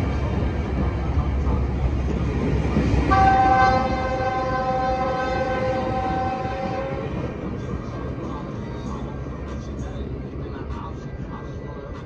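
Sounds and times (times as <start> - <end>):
rumble of train cars rolling: 0.0 - 12.0
train horn chord: 3.1 - 7.2.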